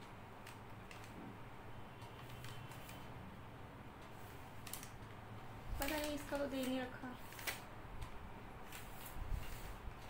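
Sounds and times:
packaging wrap crinkling: 0:05.7 - 0:10.0.

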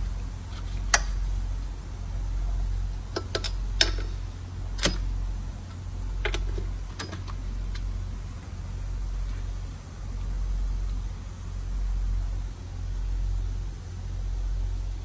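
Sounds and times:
steady low hum: 0:00.0 - 0:15.0
hand tools clicking on metal: 0:03.1 - 0:04.2.

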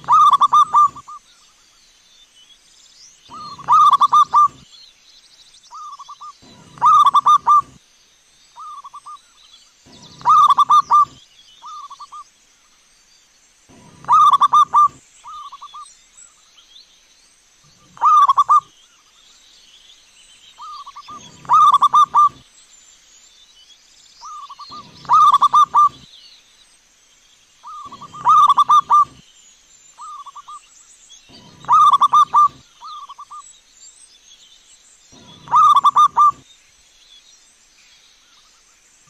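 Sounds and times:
dove cooing: 0:00.0 - 0:01.2, 0:03.3 - 0:04.6, 0:05.8 - 0:07.8, 0:09.9 - 0:12.0, 0:13.7 - 0:15.7, 0:17.7 - 0:18.7, 0:20.6 - 0:22.4, 0:24.3 - 0:26.0, 0:27.7 - 0:29.2, 0:31.3 - 0:33.2, 0:35.2 - 0:36.4
faint high chirps: 0:05.7 - 0:07.8, 0:08.6 - 0:12.2, 0:20.6 - 0:22.4, 0:24.2 - 0:26.1, 0:27.6 - 0:29.3, 0:35.1 - 0:36.5.

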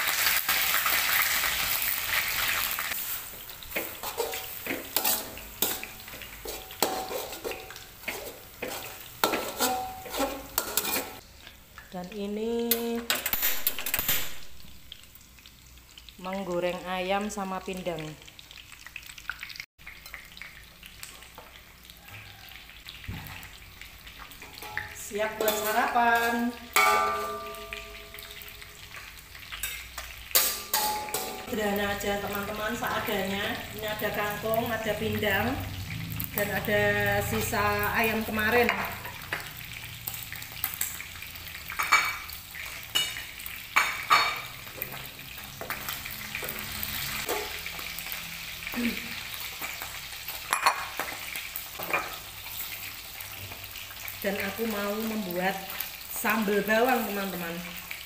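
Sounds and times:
chicken sizzling in hot oil: 0:00.0 - 0:58.0
utensils clinking against dishes: 0:03.7 - 0:11.2, 0:29.6 - 0:31.5, 0:47.2 - 0:47.6.

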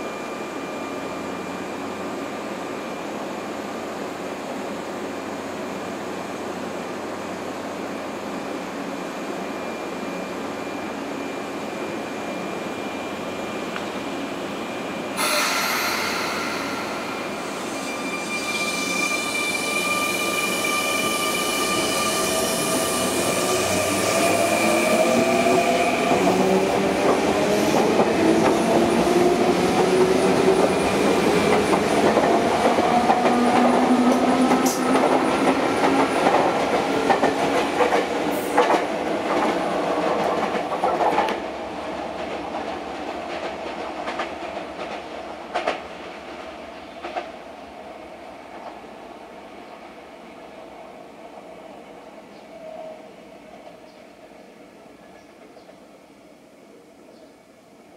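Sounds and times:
steady high tones: 0:15.2 - 0:22.0
train motor whine rising: 0:15.2 - 0:23.2.

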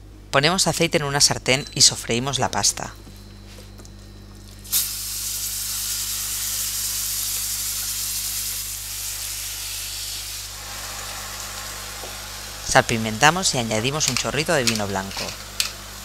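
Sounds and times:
food sizzling in a frying pan: 0:04.7 - 0:12.6.

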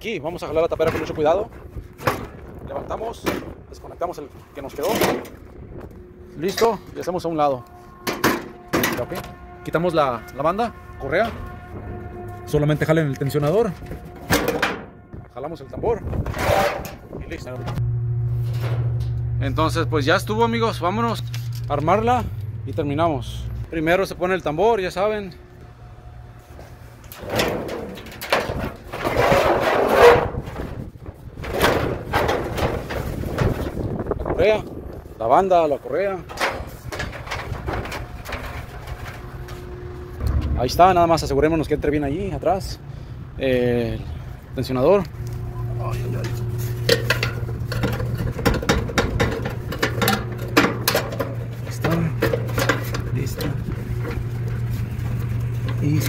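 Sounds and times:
steady low hum: 0:00.0 - 0:56.0
metal drum scraping: 0:00.4 - 0:22.4, 0:23.0 - 0:42.6, 0:44.7 - 0:56.0
metal knocks: 0:07.9 - 0:09.7, 0:13.1 - 0:15.4, 0:27.1 - 0:33.8, 0:36.2 - 0:41.0, 0:46.2 - 0:55.8.

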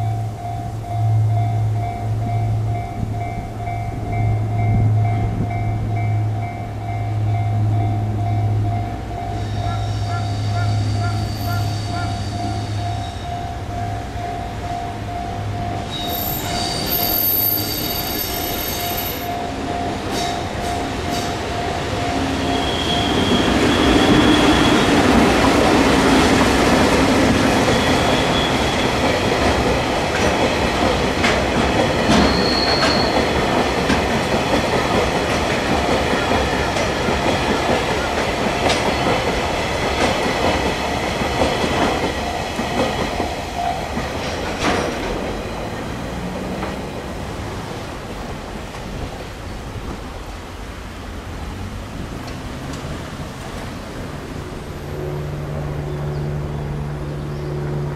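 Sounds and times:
level-crossing bell ringing: 0:00.0 - 0:25.1
train wheels rumbling and clacking: 0:00.0 - 0:57.9
train wheel squeals: 0:07.7 - 0:14.0, 0:15.6 - 0:30.5, 0:31.7 - 0:34.6.

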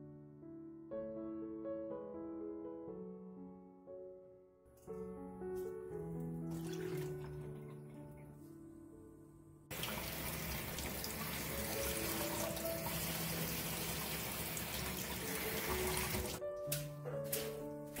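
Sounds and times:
background music: 0:00.0 - 0:18.0
tap water splashing into bowl: 0:06.5 - 0:07.5, 0:13.9 - 0:18.0.

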